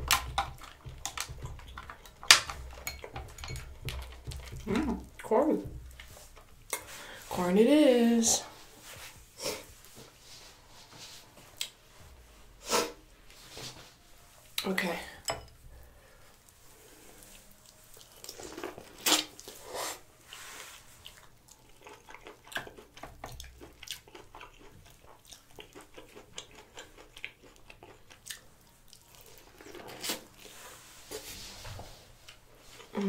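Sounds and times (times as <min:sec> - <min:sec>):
person chewing corn: 0:00.0 - 0:05.2, 0:15.8 - 0:30.9.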